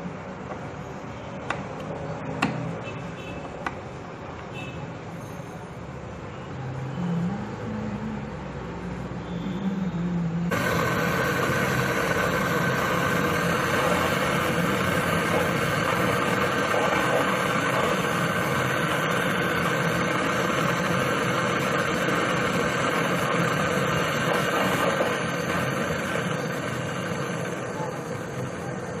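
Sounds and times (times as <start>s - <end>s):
torch flame hissing: 10.5s - 29.0s.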